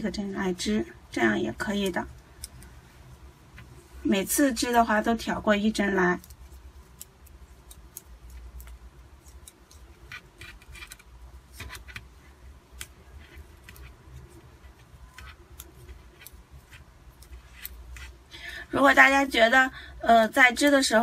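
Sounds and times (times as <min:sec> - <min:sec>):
metal knitting needles clicking: 0:01.8 - 0:02.8, 0:06.0 - 0:12.1, 0:12.7 - 0:18.2.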